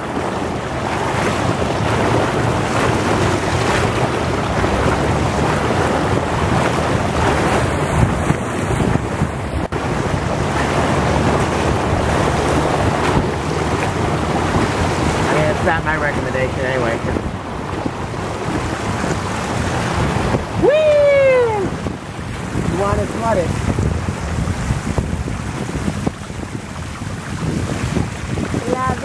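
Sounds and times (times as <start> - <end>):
wind rumbling on microphone: 0.0 - 29.0.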